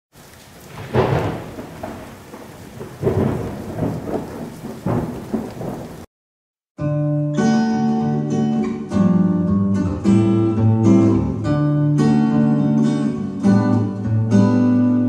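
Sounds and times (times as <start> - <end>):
steady rain: 0.1 - 6.1
thunder rolling: 0.2 - 6.1.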